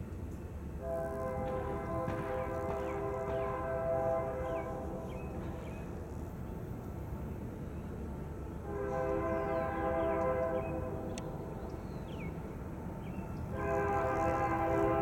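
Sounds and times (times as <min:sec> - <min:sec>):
train low rumble: 0:00.0 - 0:15.0
locomotive air horn blasts: 0:00.8 - 0:05.4, 0:08.6 - 0:11.1, 0:13.5 - 0:15.0.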